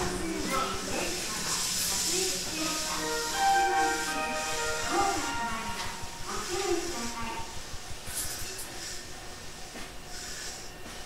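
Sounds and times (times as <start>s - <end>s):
train interior rumble: 0.0s - 11.0s.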